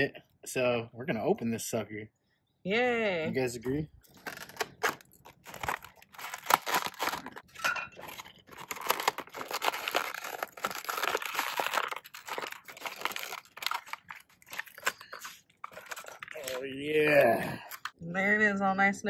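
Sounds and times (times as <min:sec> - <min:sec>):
plastic packaging crinkling and tearing: 0:04.1 - 0:18.0.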